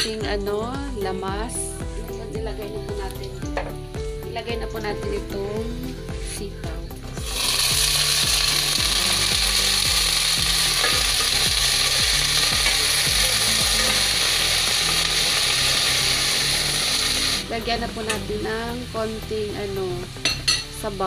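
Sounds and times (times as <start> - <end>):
beans sizzling in hot oil: 7.2 - 21.0.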